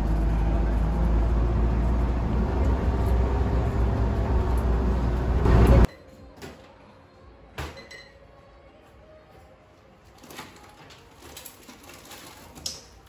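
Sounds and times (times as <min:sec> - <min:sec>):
loud low rumble: 0:00.0 - 0:05.9.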